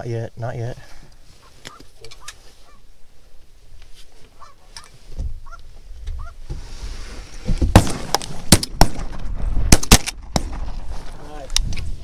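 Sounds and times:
geese honking: 1.4 - 2.9, 4.3 - 5.6, 6.2 - 6.4
shotgun blasts: 7.7 - 10.8.

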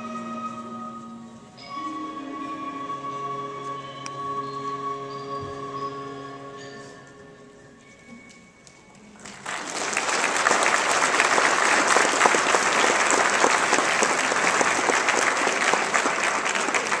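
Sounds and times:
audience applause: 9.2 - 17.0.

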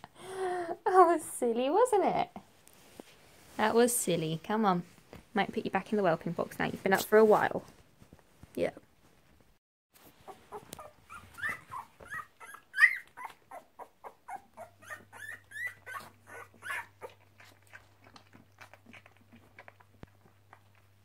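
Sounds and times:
puppy squeaking and whimpering: 10.2 - 17.6.

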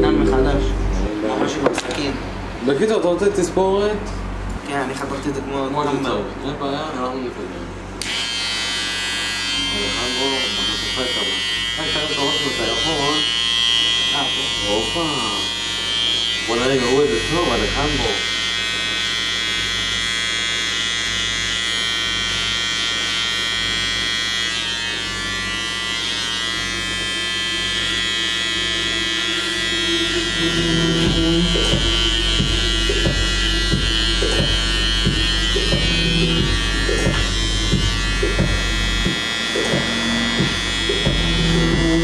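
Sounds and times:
electric hair clipper buzzing: 7.9 - 42.0
background music with steady beat: 29.8 - 42.0.

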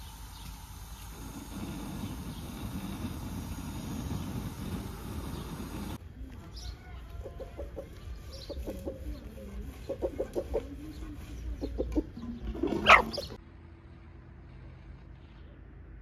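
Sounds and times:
chickens clucking: 6.6 - 13.4.

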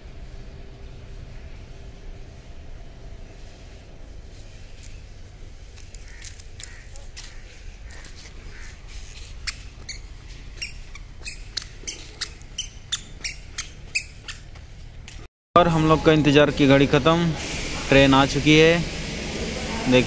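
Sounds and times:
squeaky shoes chirping: 6.0 - 15.3.

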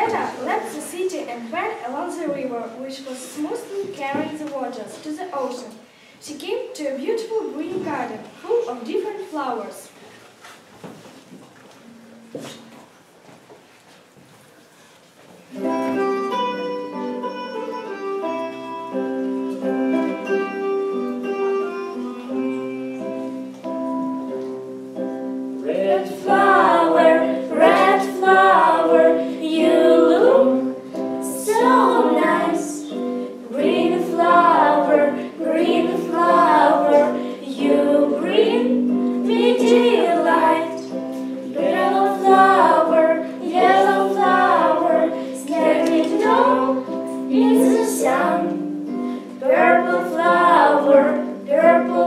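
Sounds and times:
instrumental accompaniment: 15.5 - 52.0.

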